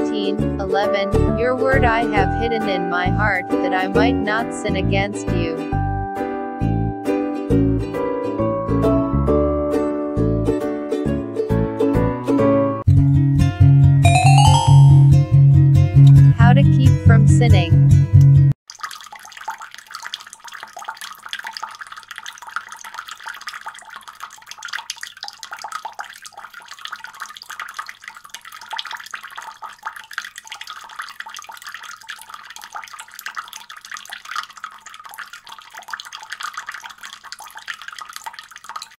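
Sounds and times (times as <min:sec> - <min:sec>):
water trickling and dripping: 0:18.7 - 0:38.9.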